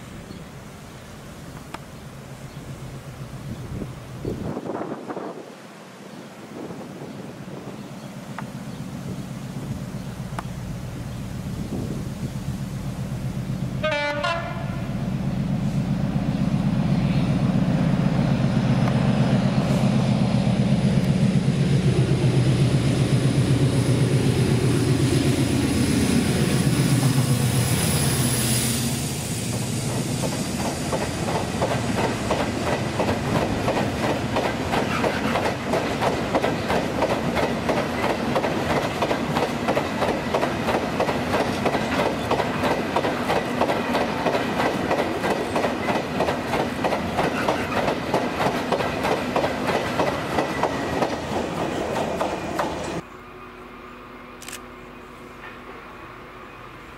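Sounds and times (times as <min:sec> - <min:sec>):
diesel locomotive engine: 0:00.0 - 0:56.9
train wheels clickety-clack: 0:29.2 - 0:53.0.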